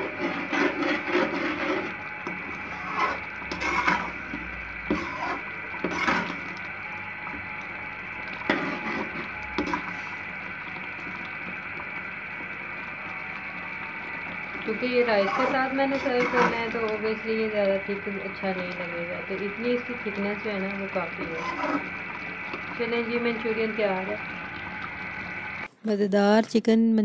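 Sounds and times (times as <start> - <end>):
metal spoon stirring gravy in a pan: 0.0 - 6.6, 14.7 - 17.0, 21.1 - 22.1.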